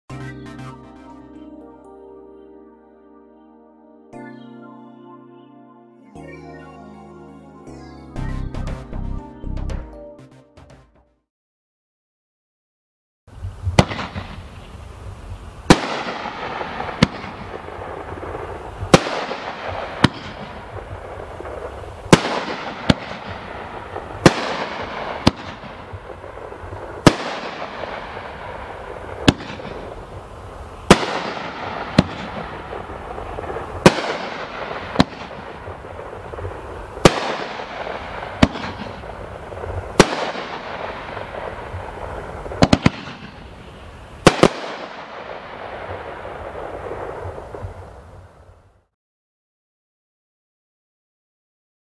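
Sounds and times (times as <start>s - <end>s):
fireworks bangs: 13.6s - 14.9s, 15.6s - 48.5s
sizzle of burning stars: 13.6s - 48.9s.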